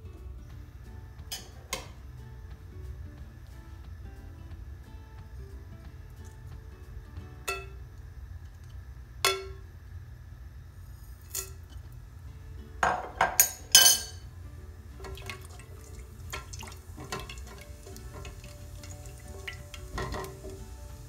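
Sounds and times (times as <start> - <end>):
spices clinking into a pan: 12.8 - 14.3, 16.3 - 20.6
spatula tapping a pan: 16.3 - 20.7.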